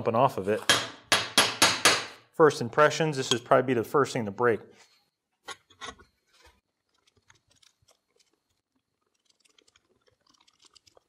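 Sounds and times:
faint clicks and scraping: 4.8s - 11.0s.

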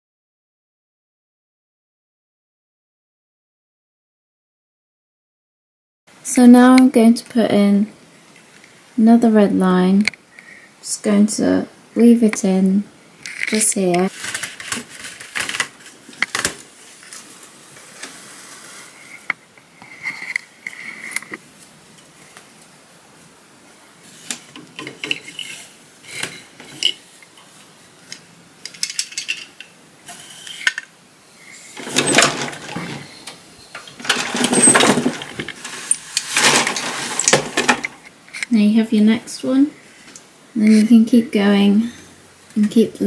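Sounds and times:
loom shafts clattering: 31.7s - 38.0s.

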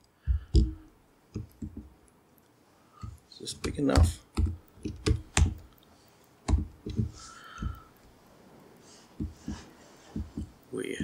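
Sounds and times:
laptop keystrokes and clicks: 0.0s - 1.9s, 3.0s - 5.8s, 6.4s - 8.1s, 9.2s - 10.7s.

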